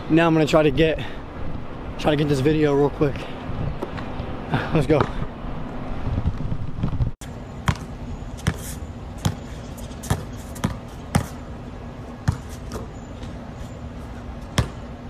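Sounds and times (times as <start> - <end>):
basketball bouncing on hard court: 7.7 - 8.6, 9.2 - 11.4, 12.2 - 12.9, 14.6 - 14.8.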